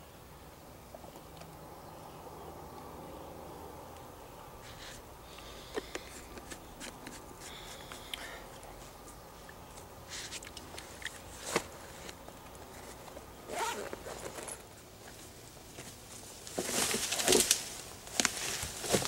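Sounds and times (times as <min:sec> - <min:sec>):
clothing and gear rustling: 0:10.1 - 0:19.0
zipper rasp: 0:13.5 - 0:14.6
footsteps through leafy brush: 0:15.2 - 0:19.0.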